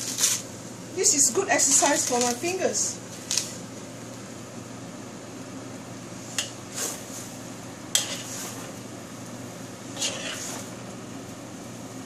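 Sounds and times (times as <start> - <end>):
spatula scraping a wok: 6.4 - 7.3, 7.9 - 8.8, 9.8 - 10.8.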